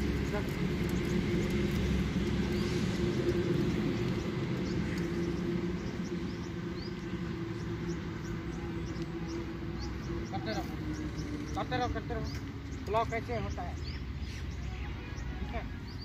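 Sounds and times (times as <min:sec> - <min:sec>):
steady low hum: 0:00.0 - 0:11.6
small birds chirping: 0:00.0 - 0:16.0.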